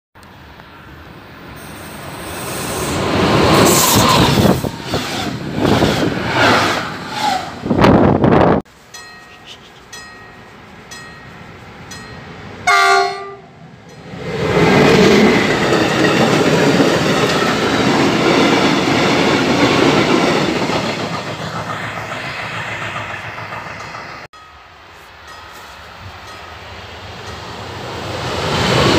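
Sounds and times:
train wheels on rails: 0.4 - 28.9
train horn blast: 12.6 - 13.6.

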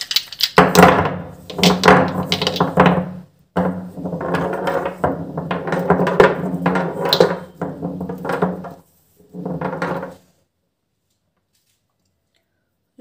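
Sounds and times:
plastic bottles clicking together: 0.0 - 0.8, 1.5 - 3.0.

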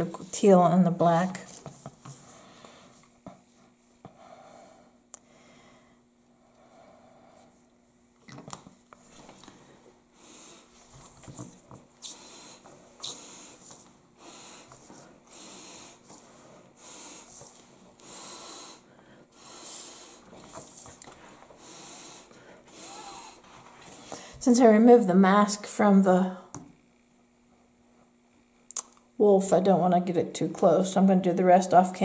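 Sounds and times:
breath blown through a straw: 12.0 - 17.4, 18.0 - 20.4, 21.6 - 23.4.

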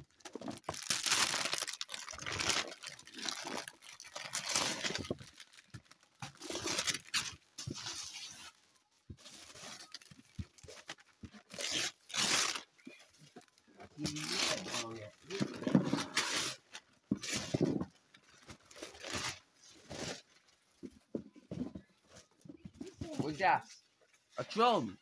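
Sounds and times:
wrapping paper tearing: 0.2 - 8.6, 9.2 - 12.7, 14.0 - 17.7, 18.6 - 20.4.

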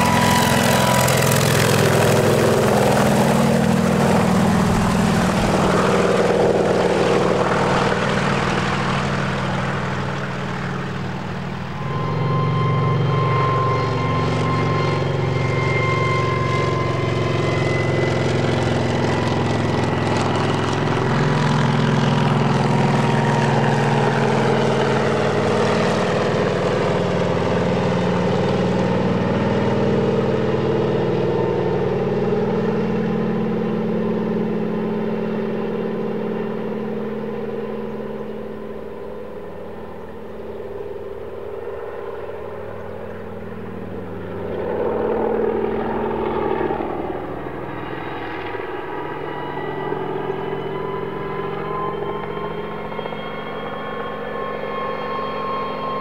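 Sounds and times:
high thin whine: 0.0 - 18.0
helicopter engines and rotors: 0.0 - 56.0.

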